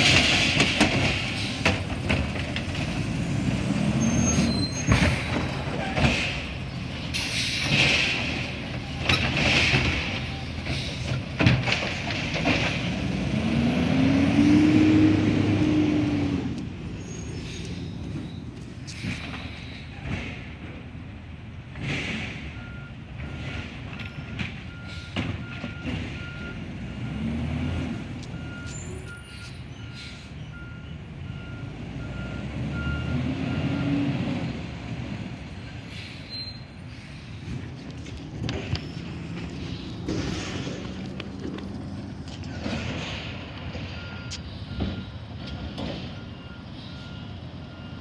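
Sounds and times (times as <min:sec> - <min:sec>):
truck engine revving: 0:00.0 - 0:10.8, 0:12.0 - 0:17.6, 0:25.8 - 0:28.6, 0:37.4 - 0:48.0
reversing alarm beeping: 0:22.6 - 0:27.3, 0:28.3 - 0:34.1, 0:43.9 - 0:48.0.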